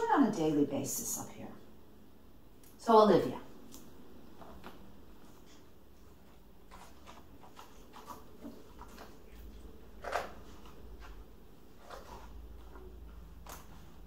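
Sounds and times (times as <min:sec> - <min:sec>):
book pages rustling: 0:04.3 - 0:14.0.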